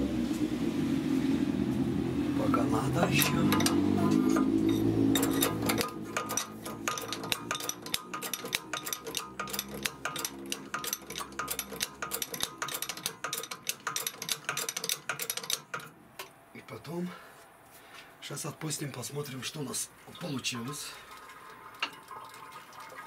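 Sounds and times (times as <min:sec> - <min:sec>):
low hum: 0:00.0 - 0:14.1.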